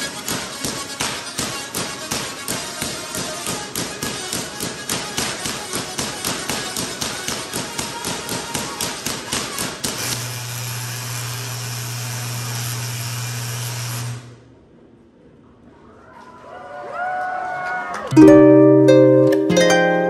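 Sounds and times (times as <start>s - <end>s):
tesla coil spark cracks: 0.0s - 14.4s
buzzing electric arc: 8.6s - 14.5s.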